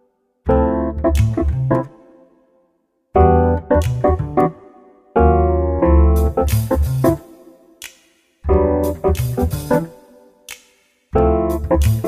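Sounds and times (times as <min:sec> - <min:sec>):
keyboard music: 0:00.0 - 0:02.4, 0:03.2 - 0:07.8, 0:08.5 - 0:10.4, 0:11.2 - 0:12.0.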